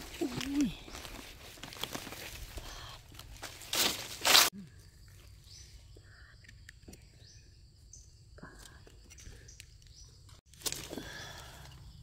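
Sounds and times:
dry leaves rustling and crackling: 0.0 - 4.5.

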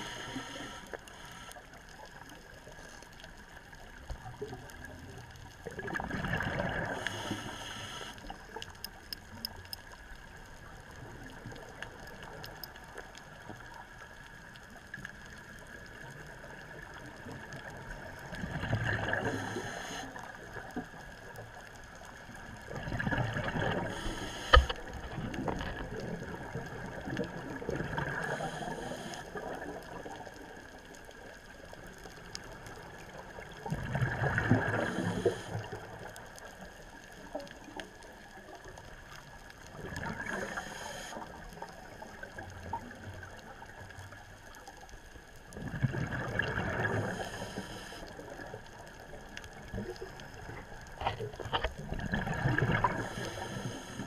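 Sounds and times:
faint crackling: 0.0 - 54.0
diver exhaling bubbles underwater: 5.7 - 7.4, 22.7 - 28.5, 33.7 - 35.6, 45.6 - 47.5, 51.8 - 53.9.

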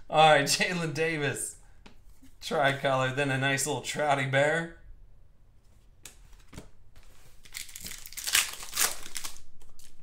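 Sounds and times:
foil wrapper tearing and crinkling: 7.4 - 10.0.

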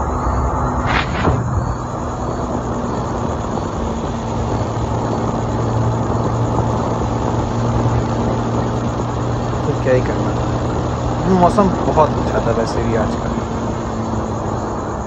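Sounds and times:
motorcycle engine hum: 0.0 - 15.0
wind rushing over microphone: 0.0 - 15.0.

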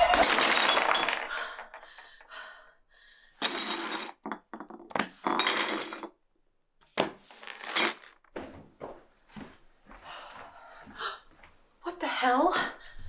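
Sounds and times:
ceramic shards clinking on wooden floor: 0.0 - 1.7, 3.4 - 6.1, 7.3 - 8.2.

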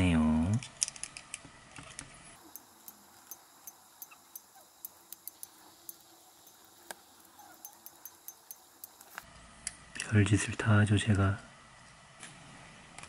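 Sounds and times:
faint metal clicks and ticks: 0.5 - 10.1.

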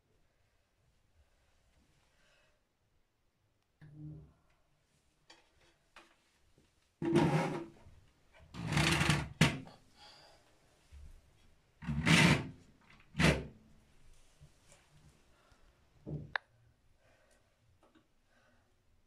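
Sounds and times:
scale scraping across tile floor: 7.0 - 7.8.

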